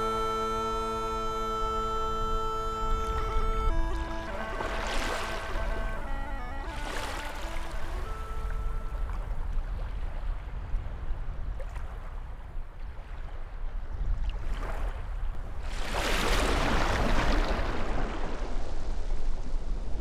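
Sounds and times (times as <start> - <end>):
waves washing over sand: 14.3 - 20.0.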